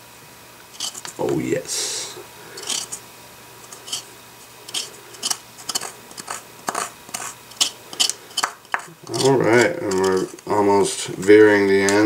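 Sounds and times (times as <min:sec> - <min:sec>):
metal spoon scraping plastic: 0:00.7 - 0:01.2, 0:02.6 - 0:03.0, 0:03.6 - 0:10.5.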